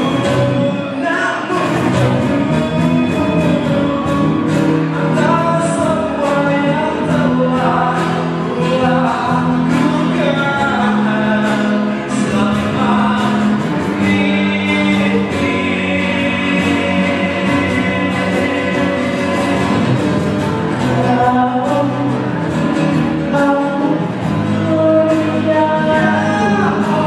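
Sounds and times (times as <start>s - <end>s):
man singing: 0.0s - 20.1s, 20.7s - 27.0s
cajon beat: 0.0s - 27.0s
strummed acoustic guitars: 0.0s - 27.0s.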